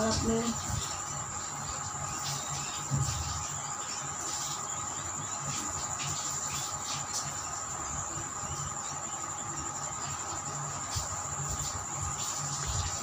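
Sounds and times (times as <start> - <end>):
faint steady hum: 0.0 - 13.0
high-pitched whine: 0.0 - 13.0.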